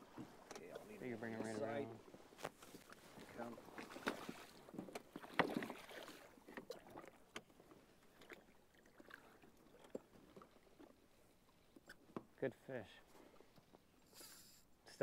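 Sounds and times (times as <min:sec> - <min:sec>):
fish splashing in water: 0:03.7 - 0:06.4.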